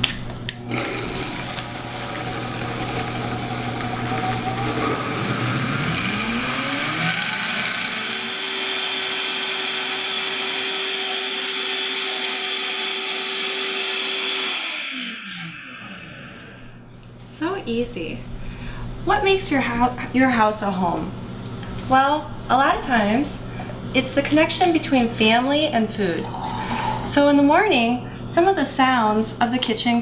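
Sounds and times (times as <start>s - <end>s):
blender motor running: 0.5s - 16.8s.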